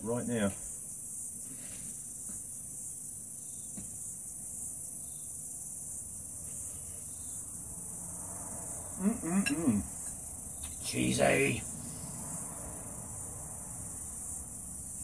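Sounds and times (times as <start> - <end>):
insect chorus chirring: 0.0 - 15.0
man making wordless vocal sound: 9.0 - 9.9.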